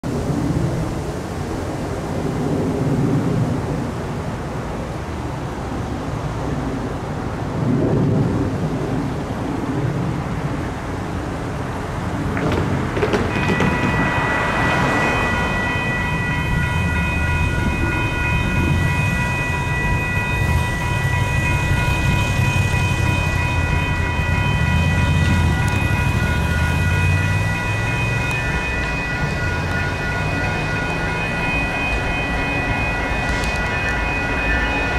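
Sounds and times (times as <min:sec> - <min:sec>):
railroad crossing bells ringing: 0:11.8 - 0:34.9.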